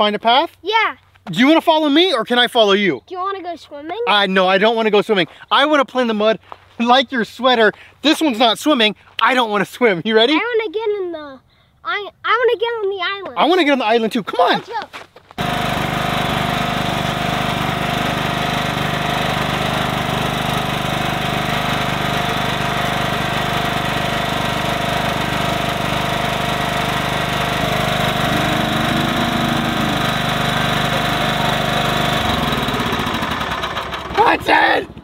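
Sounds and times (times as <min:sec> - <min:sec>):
garden tractor engine running: 0:15.4 - 0:35.0.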